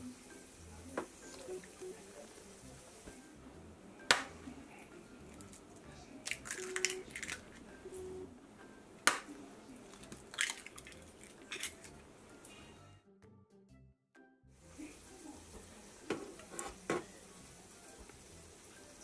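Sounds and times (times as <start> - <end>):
eggshell crackling: 5.3 - 7.7, 9.0 - 12.2
egg tapped on edge: 9.1 - 9.3.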